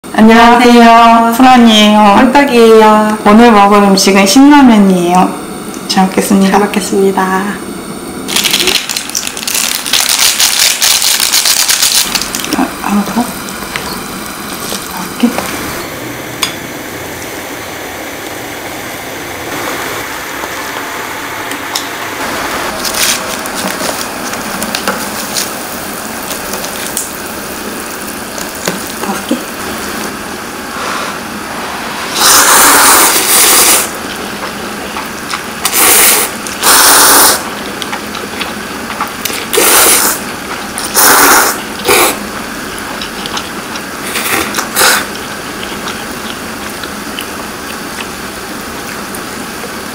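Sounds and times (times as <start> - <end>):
people slurping noodles: 28.0 - 34.2, 35.6 - 48.3.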